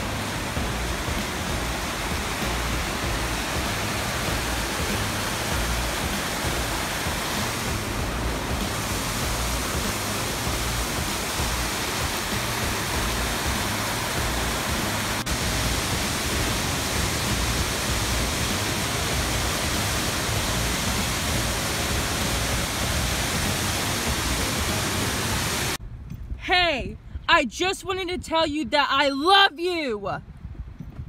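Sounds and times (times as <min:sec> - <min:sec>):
creek water rushing over rocks: 0:00.0 - 0:25.8
wind buffeting microphone: 0:30.0 - 0:31.0.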